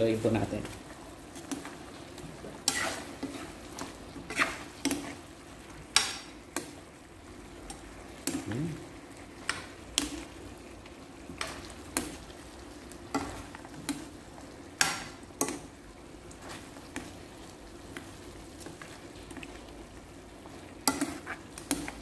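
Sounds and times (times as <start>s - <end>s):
sauce simmering sizzle: 0.0s - 22.0s
ladle scraping a wok: 2.4s - 5.2s.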